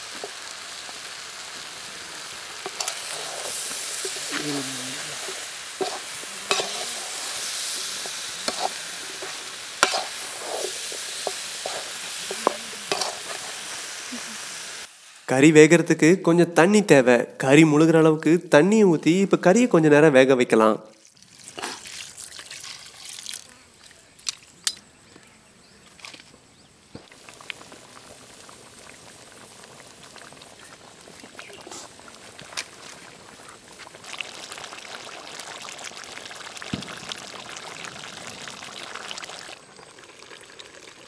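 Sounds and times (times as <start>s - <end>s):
curry bubbling on the boil: 0.0s - 14.9s, 27.0s - 41.0s
water splashing into pan: 33.8s - 41.0s.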